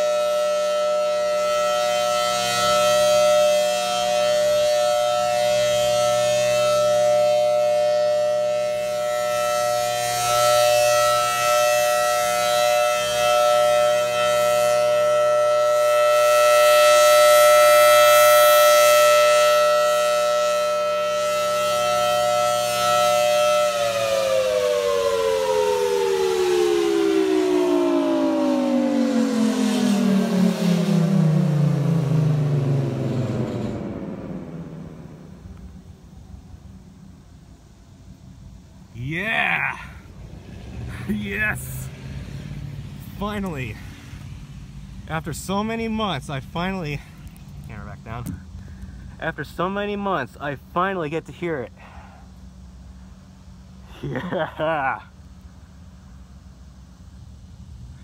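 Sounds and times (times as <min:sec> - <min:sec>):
warning siren two-tone wail: 0:00.0 - 0:37.6, 0:38.9 - 0:44.1.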